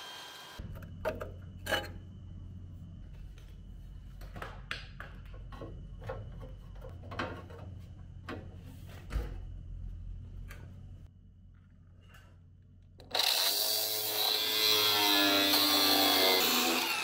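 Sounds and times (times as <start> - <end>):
low steady hum: 0.6 - 13.0.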